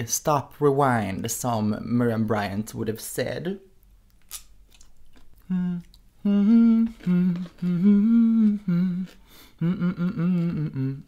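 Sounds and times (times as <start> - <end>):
woman humming: 5.4 - 11.0.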